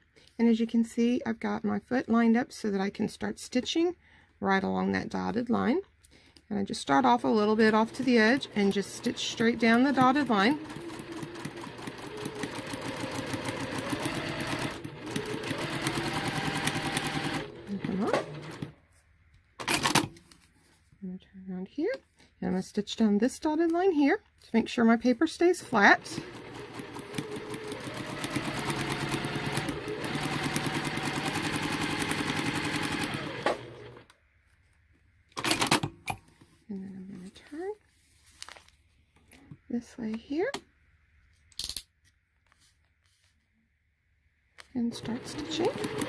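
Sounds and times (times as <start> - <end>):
sewing machine stitching: 6.9 - 18.8, 25.6 - 34.0, 44.8 - 46.0.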